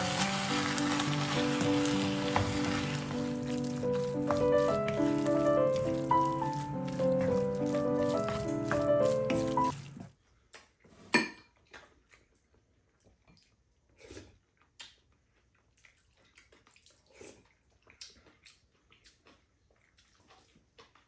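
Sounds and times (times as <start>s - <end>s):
background music: 0.0s - 9.8s.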